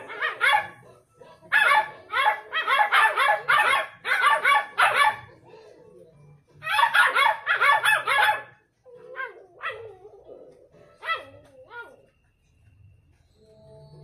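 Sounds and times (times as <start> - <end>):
puppies barking: 0.0 - 5.4, 6.6 - 12.0.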